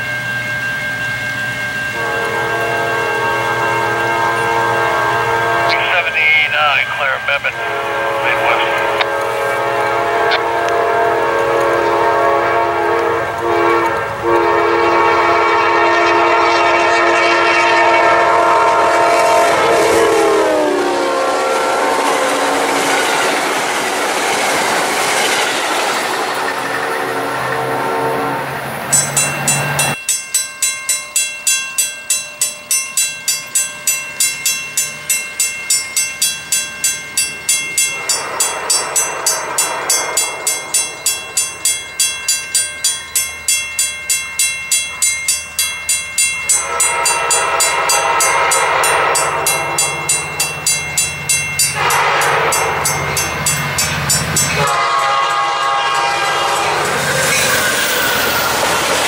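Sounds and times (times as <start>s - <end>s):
crossing bells ringing: 0.0s - 59.0s
train rushing past: 1.3s - 30.0s, 36.4s - 59.0s
train horn blasts: 1.9s - 23.3s, 26.8s - 28.6s, 38.0s - 41.4s, 46.5s - 50.7s, 51.6s - 53.1s, 54.5s - 58.4s.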